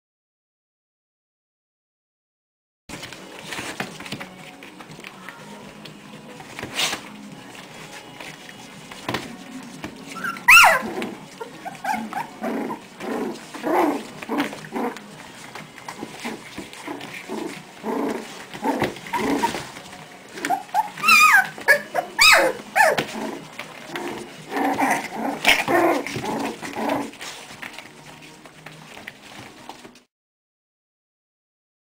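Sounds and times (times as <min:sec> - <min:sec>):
puppies growling and yipping: 0:08.8 - 0:30.0
puppy high yelps: 0:10.2 - 0:10.9, 0:11.6 - 0:12.4, 0:20.4 - 0:23.0.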